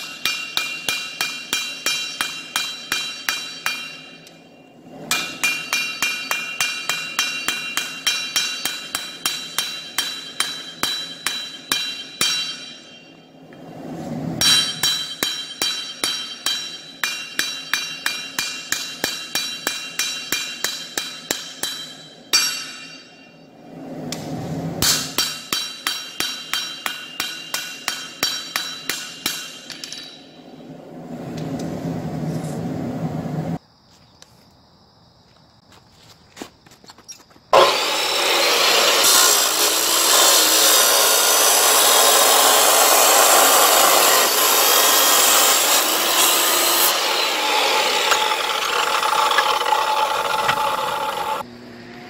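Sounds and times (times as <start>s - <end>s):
hammer ringing on anvil: 0.0s - 13.3s, 14.4s - 23.5s, 24.8s - 30.4s.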